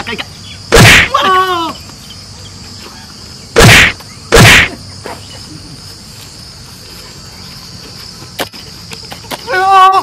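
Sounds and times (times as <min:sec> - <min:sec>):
crickets chirring: 0:00.0 - 0:10.0
loud slaps: 0:00.7 - 0:01.1, 0:03.6 - 0:04.8.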